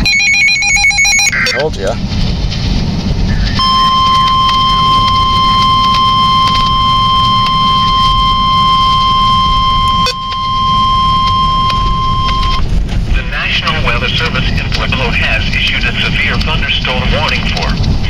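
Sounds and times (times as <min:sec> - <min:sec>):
weather radio alarm tone: 0:00.0 - 0:01.8, 0:03.6 - 0:12.6
car rumble: 0:00.0 - 0:18.0.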